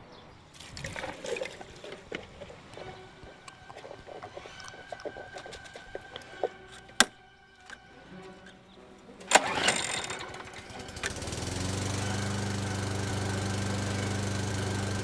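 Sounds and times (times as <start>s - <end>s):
starter cord pull: 6.2s - 15.0s
lawn mower engine running: 9.2s - 15.0s.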